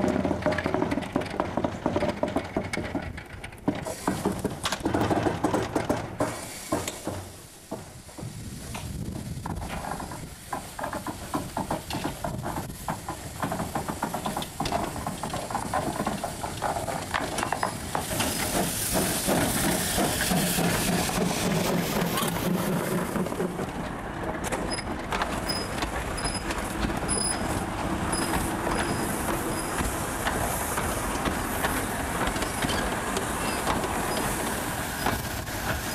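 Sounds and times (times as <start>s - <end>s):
steam locomotive knocks and clanks: 0.0s - 35.9s
steam hissing: 3.7s - 35.9s
carriage wheels squeaking: 13.0s - 19.3s, 24.5s - 29.9s, 32.4s - 35.3s.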